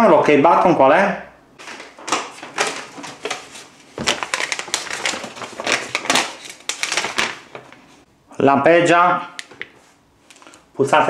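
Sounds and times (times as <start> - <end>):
paper leaflet rustling and crinkling: 1.6 - 8.0, 9.4 - 10.7.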